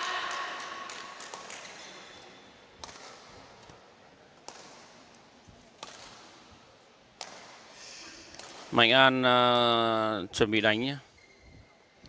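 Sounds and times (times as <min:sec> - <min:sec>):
rackets hitting shuttlecock: 0:00.9 - 0:03.8, 0:04.4 - 0:05.2, 0:05.8 - 0:06.6, 0:07.2 - 0:08.8.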